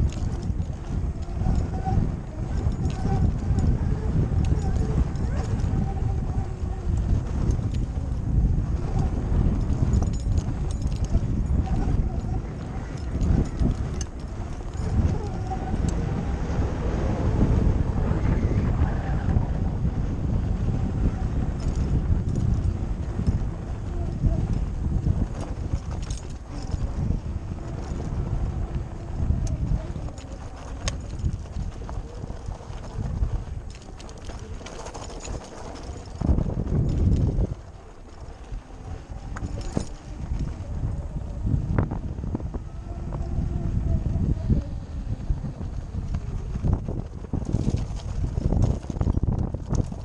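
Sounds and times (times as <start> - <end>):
tyres rumbling on dirt trail: 0.0 - 50.0
wind buffeting microphone: 0.0 - 50.0
tyres crunching over stones: 24.5 - 41.1.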